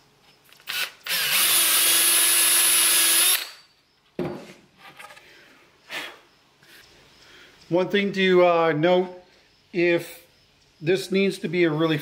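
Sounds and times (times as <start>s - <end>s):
cordless drill whining: 0.5s - 3.7s.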